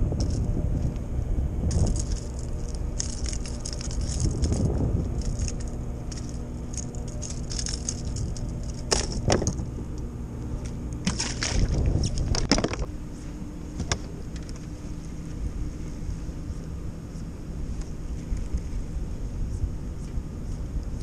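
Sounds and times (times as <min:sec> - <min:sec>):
steady low hum: 0:00.0 - 0:21.0
fishing gear clicks and jangles: 0:01.7 - 0:09.6.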